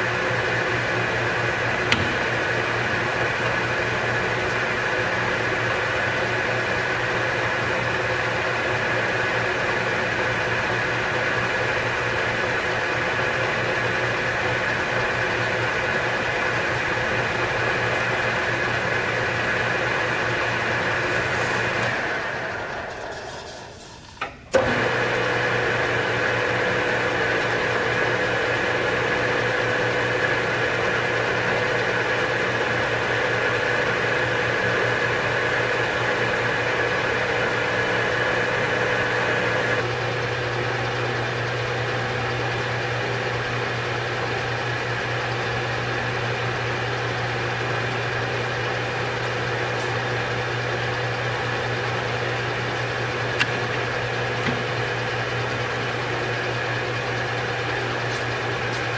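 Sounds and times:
lathe running with whine: 0.0s - 58.9s
lathe switch click: 1.8s - 2.5s, 53.4s - 53.6s.

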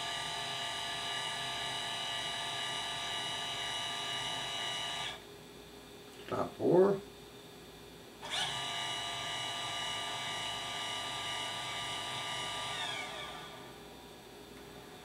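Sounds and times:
motor whine: 0.0s - 5.2s, 8.2s - 14.2s.

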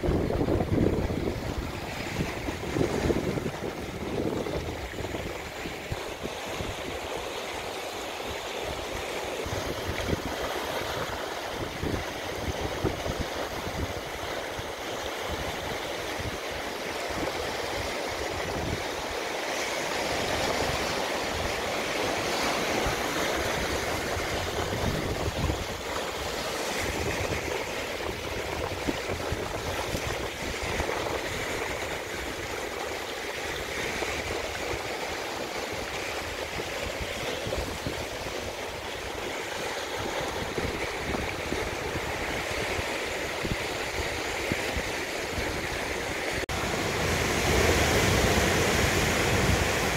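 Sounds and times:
rushing water: 0.0s - 49.9s.

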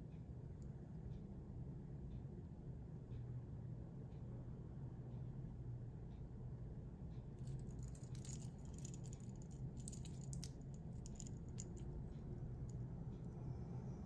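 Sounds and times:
watch bracelet clinking: 7.4s - 12.8s
small metallic clicks: 7.4s - 13.3s
low hum: 7.4s - 14.0s.

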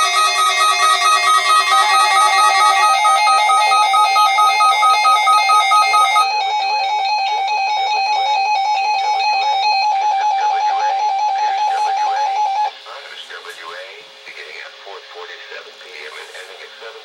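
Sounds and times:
low pulsing beep: 0.0s - 12.8s
rapid electronic alarm beeping: 0.0s - 12.8s.

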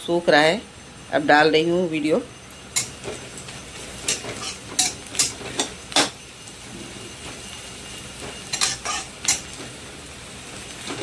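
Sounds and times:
spoon scraping a cooking pan: 4.0s - 6.2s, 8.2s - 9.7s.

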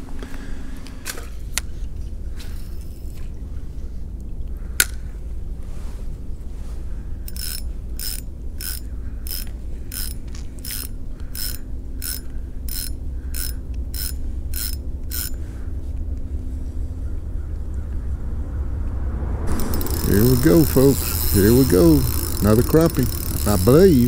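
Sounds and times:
low rumble: 3.3s - 24.0s
fishing reel clicking: 7.2s - 15.4s, 19.5s - 24.0s.

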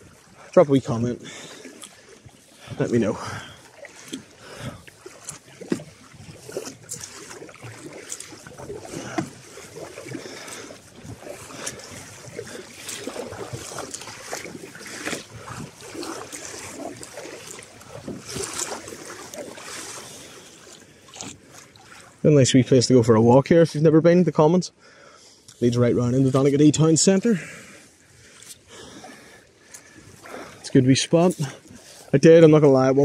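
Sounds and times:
paddle splashes: 0.0s - 23.8s, 24.9s - 33.0s
water sloshing around kayak: 0.0s - 33.0s.

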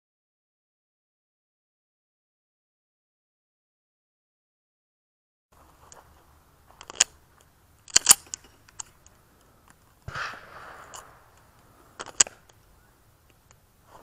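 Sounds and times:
pistol metallic clicks: 5.9s - 13.7s.

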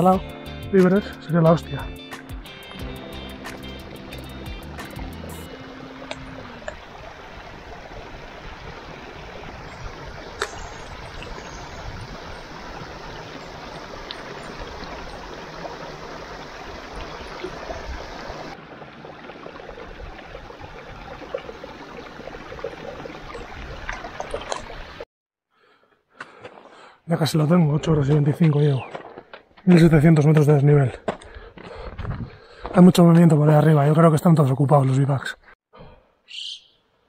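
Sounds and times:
stream trickling over rocks: 2.5s - 25.0s
bottle filling with water: 3.7s - 25.0s.

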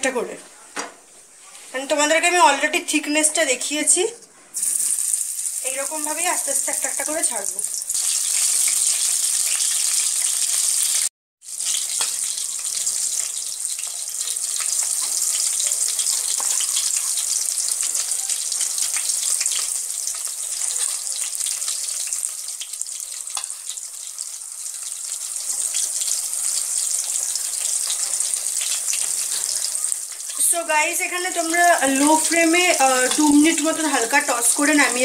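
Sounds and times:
food frying in hot oil: 4.6s - 35.0s
spatula turning food: 11.6s - 35.0s.

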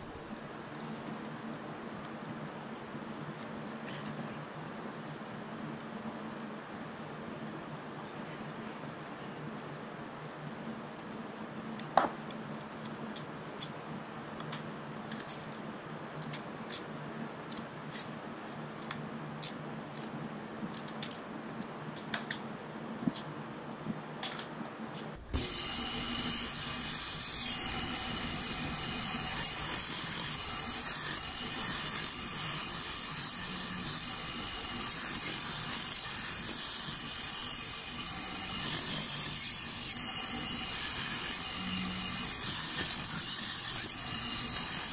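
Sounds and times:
band saw cutting metal: 25.3s - 44.9s.

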